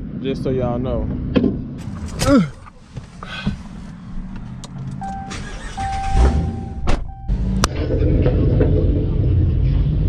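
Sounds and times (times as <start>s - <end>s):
car engine running: 1.5s - 10.0s
electronic beep: 5.0s - 7.6s.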